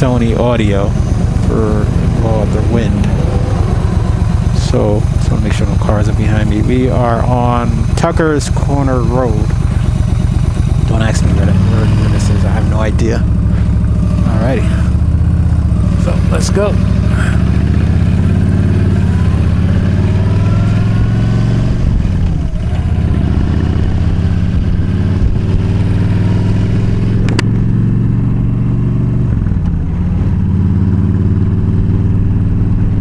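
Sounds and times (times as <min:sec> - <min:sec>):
motorcycle engine accelerating: 0:00.0 - 0:33.0.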